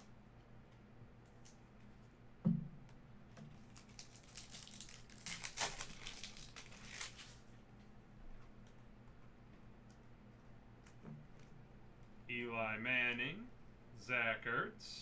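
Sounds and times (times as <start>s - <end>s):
thump: 2.4s - 2.8s
foil wrapper tearing and crinkling: 3.6s - 7.4s.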